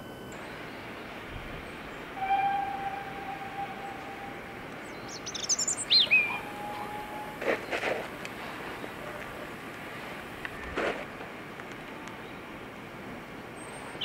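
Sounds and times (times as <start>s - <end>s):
bird singing: 0.0s - 7.9s
steam engine exhaust beats: 0.0s - 14.0s
steam whistle blowing: 1.6s - 7.6s.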